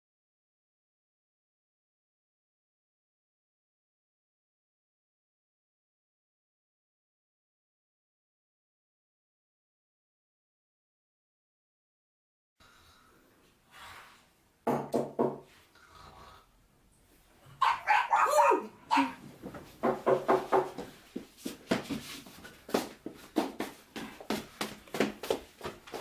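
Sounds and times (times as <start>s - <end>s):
dog barking: 17.6s - 19.2s
dog whining yelp: 17.6s - 19.2s.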